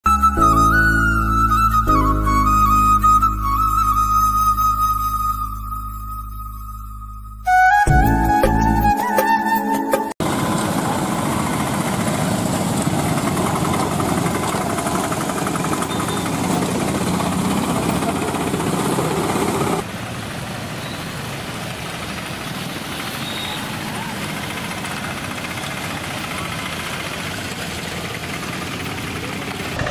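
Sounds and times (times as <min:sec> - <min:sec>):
engine puttering: 0:10.2 - 0:29.9.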